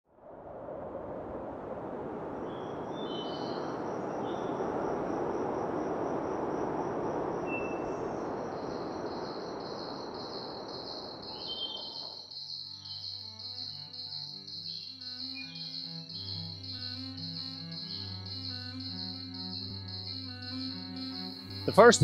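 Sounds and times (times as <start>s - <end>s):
crickets chirping: 1.0s - 22.0s
high bird chirps: 7.5s - 21.6s.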